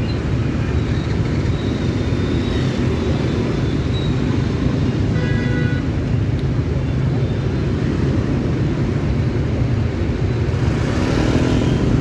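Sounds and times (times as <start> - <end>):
scooters and motorbikes passing: 7.6 - 12.0.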